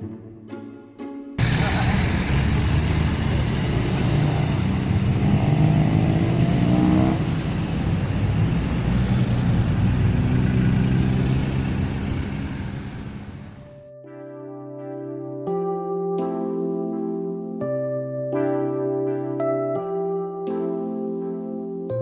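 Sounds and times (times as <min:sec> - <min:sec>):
lorry engine accelerating: 0:01.0 - 0:13.8
road traffic passing: 0:01.4 - 0:13.8.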